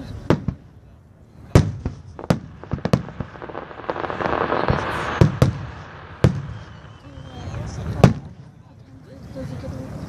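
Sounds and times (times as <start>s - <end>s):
steady rush of noise: 0.0s - 10.0s
fireworks bursting: 1.3s - 8.6s.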